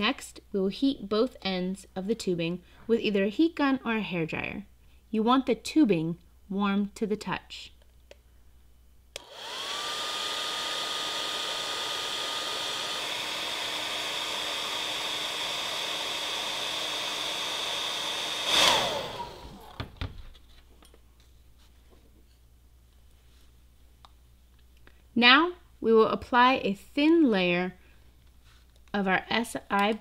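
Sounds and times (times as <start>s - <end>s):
hair dryer switch click: 9.2s - 9.5s
hair dryer blowing: 9.2s - 19.9s.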